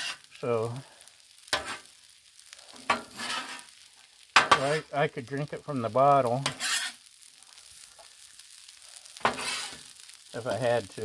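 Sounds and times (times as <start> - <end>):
metal spatulas scraping griddle: 0.0 - 0.3, 1.5 - 1.9, 2.8 - 3.7, 6.4 - 7.1, 9.2 - 9.9.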